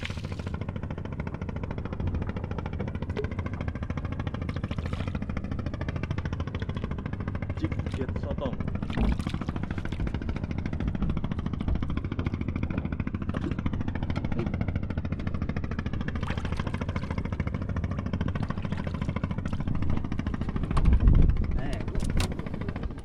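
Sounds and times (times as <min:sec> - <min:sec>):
boat engine chugging: 0:00.0 - 0:23.0.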